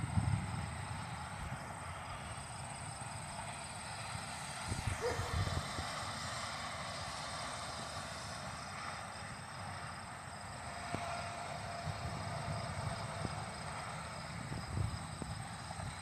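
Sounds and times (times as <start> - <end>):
wind buffeting microphone: 0.0 - 1.7, 4.6 - 5.9, 11.8 - 16.0
distant jet engine rushing: 0.0 - 16.0.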